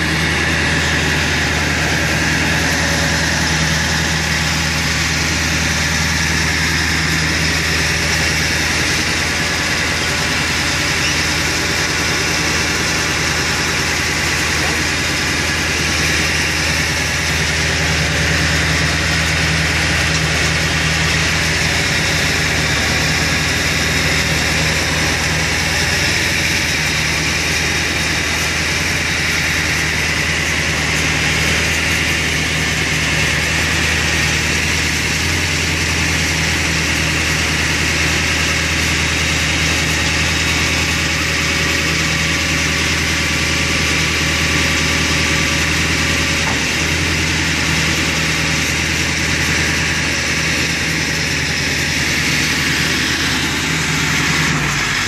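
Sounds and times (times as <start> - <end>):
truck engine idling: 0.0 - 55.0.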